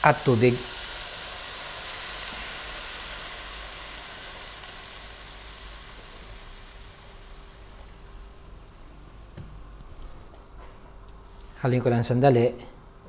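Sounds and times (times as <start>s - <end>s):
water pouring into hot pan: 0.0s - 8.8s
sizzling hiss: 0.0s - 10.4s.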